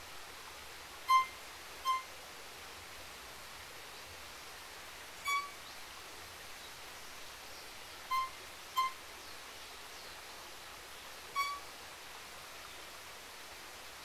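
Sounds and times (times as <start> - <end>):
violin high notes: 1.1 - 2.1, 5.3 - 5.6, 11.4 - 11.6.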